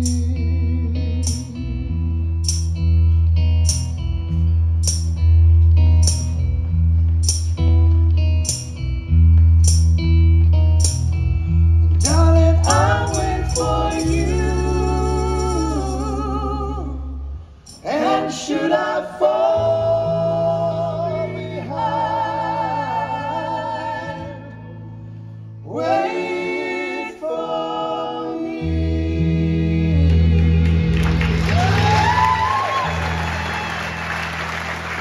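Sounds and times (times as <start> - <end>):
bass: 0.0 - 35.0
voices singing in harmony: 12.0 - 24.9, 25.6 - 31.0.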